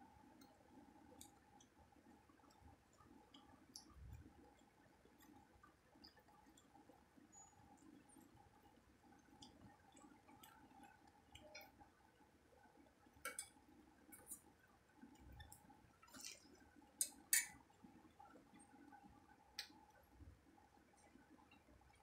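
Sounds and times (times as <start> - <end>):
faint steady hum: 0.0 - 22.0
eating clicks and smacks: 0.3 - 6.9.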